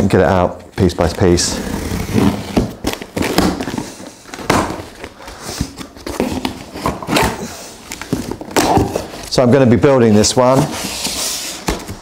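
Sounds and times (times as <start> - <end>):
cardboard box rustling and scraping: 10.2 - 12.0.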